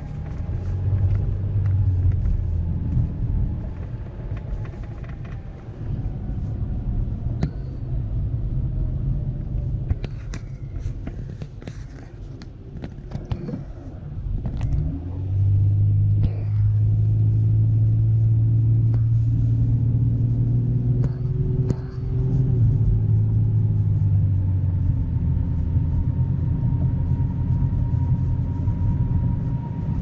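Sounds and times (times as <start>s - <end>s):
car engine and road drone: 0.0s - 30.0s.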